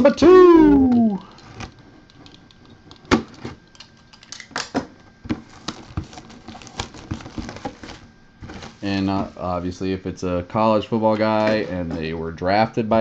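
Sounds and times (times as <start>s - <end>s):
shrink-wrap crinkling and clicking: 1.3s - 8.9s.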